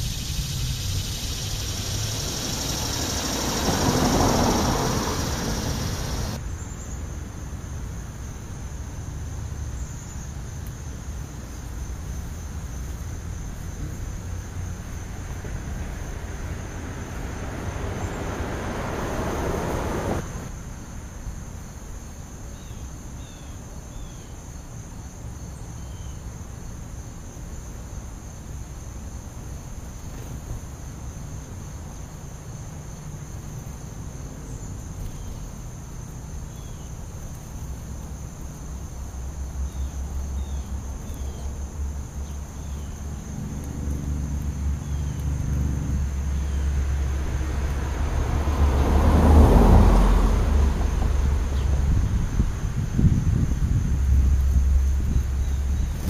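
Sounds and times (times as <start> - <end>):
insect buzzing: 0.0 - 6.4
vehicle passing: 0.0 - 6.4, 13.4 - 20.5, 38.8 - 56.0.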